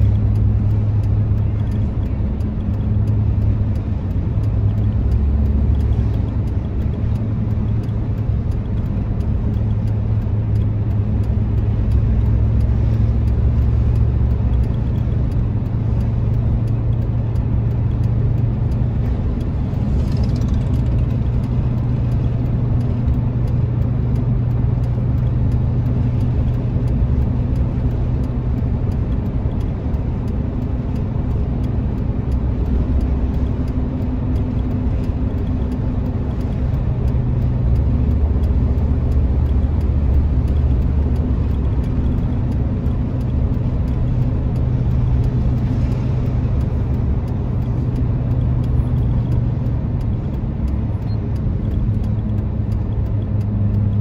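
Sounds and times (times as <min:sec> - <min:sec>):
engine and tyre hum in car: 0:00.0 - 0:54.0.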